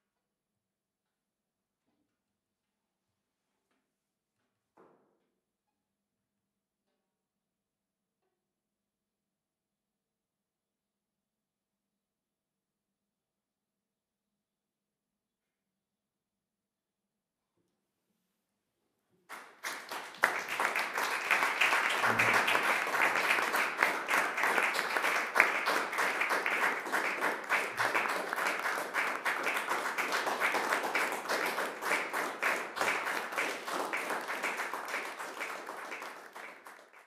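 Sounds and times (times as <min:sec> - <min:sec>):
audience applauding: 0:19.3 - 0:37.0.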